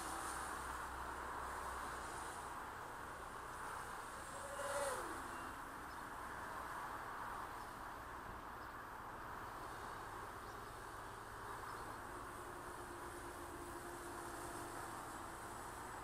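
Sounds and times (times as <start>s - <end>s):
quadcopter buzzing: 3.9s - 5.6s.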